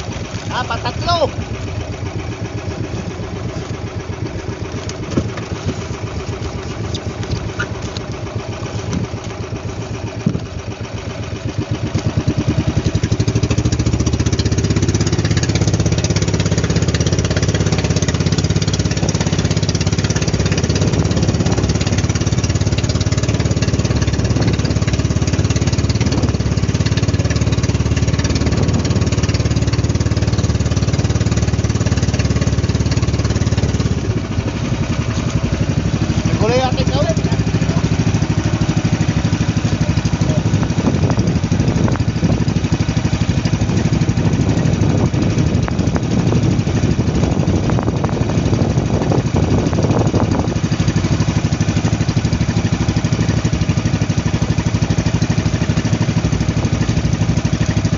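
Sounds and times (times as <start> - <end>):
water splashing off hull: 0.0 - 36.3
boat engine running: 0.0 - 57.9.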